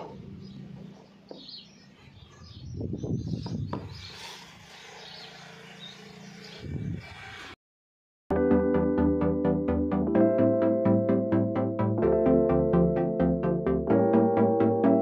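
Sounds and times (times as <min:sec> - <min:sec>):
birds chirping: 0:00.0 - 0:07.6.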